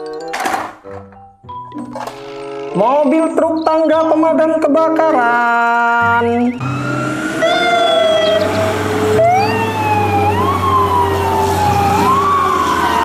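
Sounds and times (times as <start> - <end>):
fire engine siren wailing: 6.4 - 13.0.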